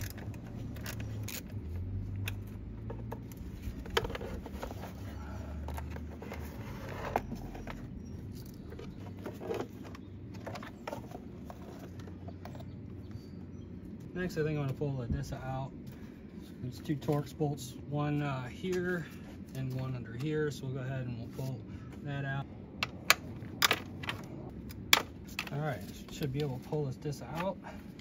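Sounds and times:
low steady hum: 0.0s - 28.0s
plastic engine cover handled: 2.3s - 12.8s.

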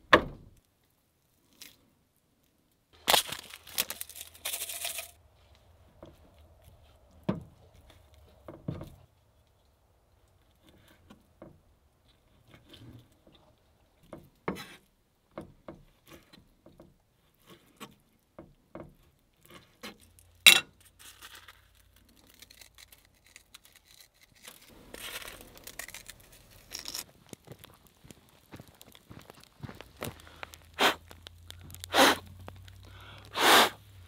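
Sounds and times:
jar rustling: 3.0s - 5.6s, 19.6s - 33.4s.

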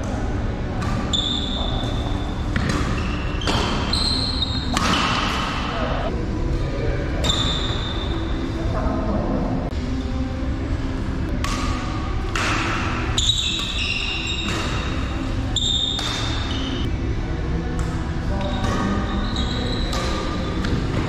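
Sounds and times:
rackets hitting shuttlecock: 0.0s - 5.9s, 11.3s - 16.8s, 17.6s - 21.0s
shoes squeaking on floor: 1.1s - 5.2s, 13.2s - 16.9s, 18.4s - 20.2s.

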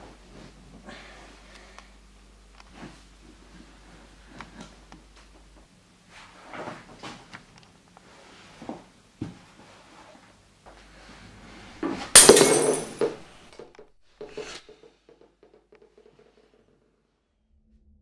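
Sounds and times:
wooden stool knocking over: 11.8s - 13.2s
drinking glass smashing: 12.2s - 13.2s.

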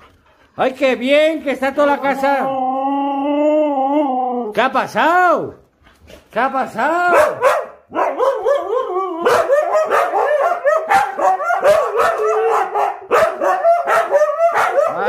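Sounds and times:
huskies howling and yipping: 7.9s - 15.0s.

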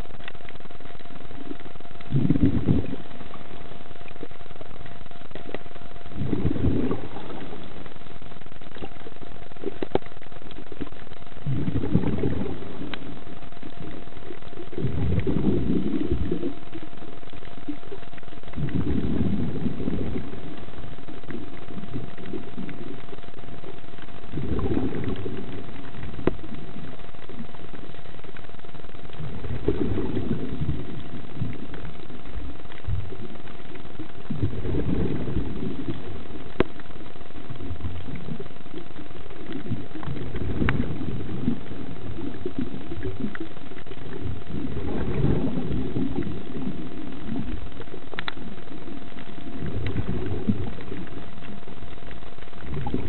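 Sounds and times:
faint steady whine: 0.0s - 53.0s
diver exhaling bubbles underwater: 1.4s - 3.4s, 6.1s - 7.8s, 11.4s - 16.9s, 18.5s - 23.2s, 24.3s - 27.5s, 29.2s - 32.2s, 34.2s - 36.7s, 39.4s - 51.5s, 52.6s - 53.0s.

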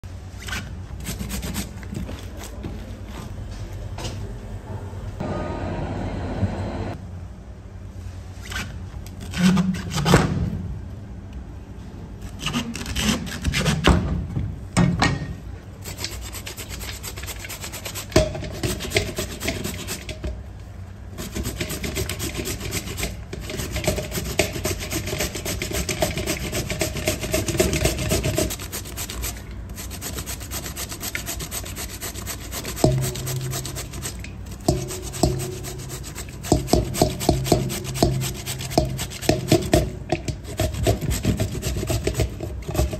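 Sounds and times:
steady low hum: 0.0s - 9.0s, 15.4s - 42.9s
rubbing and scraping strokes: 0.3s - 3.3s, 15.8s - 20.2s, 21.2s - 42.9s.

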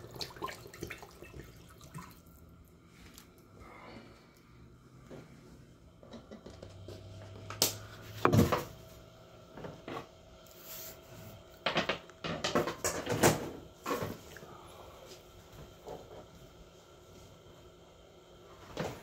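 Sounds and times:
kitchen items knocking and clunking: 11.6s - 14.2s.

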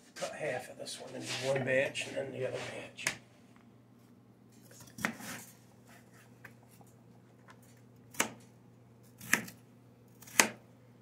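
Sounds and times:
knife chopping on plastic board: 8.1s - 8.4s, 9.2s - 9.6s, 10.2s - 10.6s.

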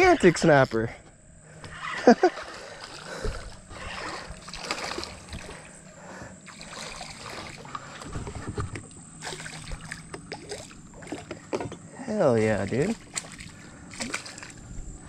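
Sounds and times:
low steady hum: 0.0s - 15.0s
fish splashing in water: 2.0s - 5.8s, 6.4s - 8.0s, 9.2s - 11.3s, 12.8s - 14.7s.

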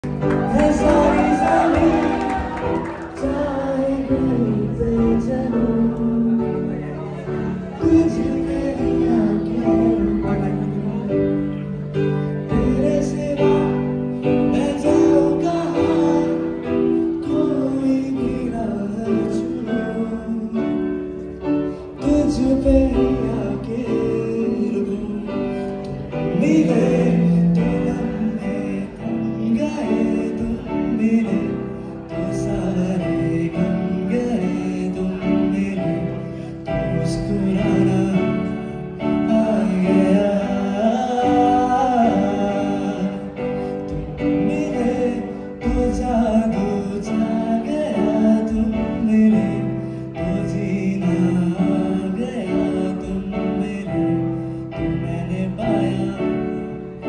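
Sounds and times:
electronic keyboard melody: 0.0s - 57.0s.

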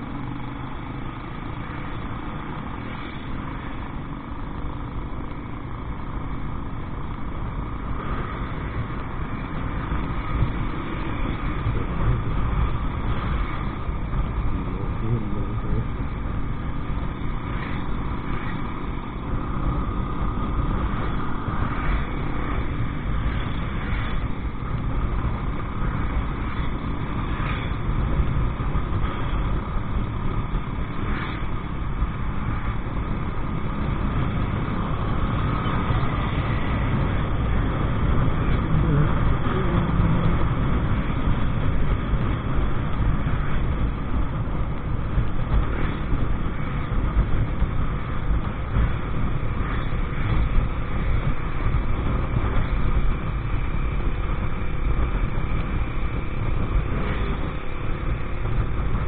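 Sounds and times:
motorcycle engine running: 0.0s - 59.0s
wind and road rumble: 0.0s - 59.0s.

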